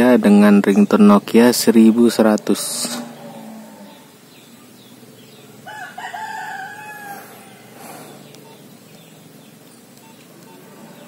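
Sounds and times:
rooster crowing: 5.6s - 8.0s.

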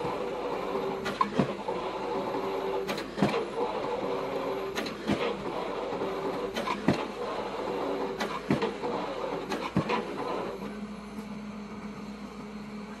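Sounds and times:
excavator engine running: 0.0s - 13.0s
pile-driving hammer blows: 2.8s - 3.6s, 4.7s - 5.4s, 6.2s - 7.3s, 8.0s - 10.4s.

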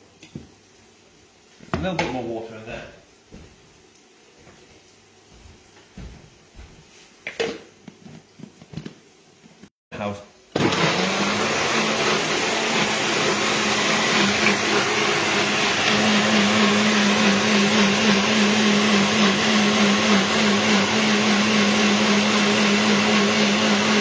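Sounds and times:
blender motor running: 10.5s - 24.0s.

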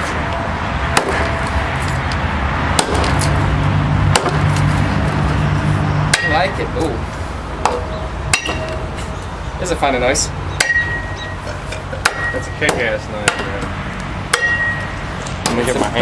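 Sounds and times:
knife blade ringing: 8.3s - 8.8s, 10.6s - 11.4s, 12.0s - 12.6s, 14.4s - 15.0s.

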